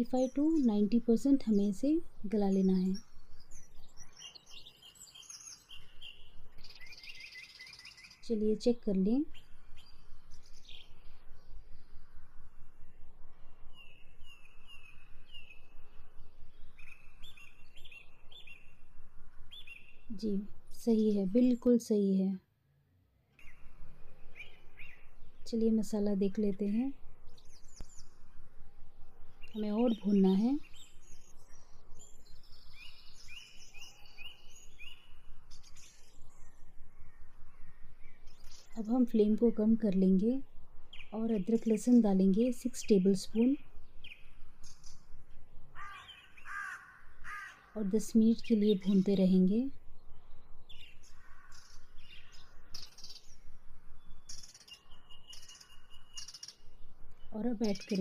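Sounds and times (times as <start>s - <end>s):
small bird chirping: 0.0s - 22.1s, 23.4s - 58.0s
low background rumble: 23.5s - 45.8s.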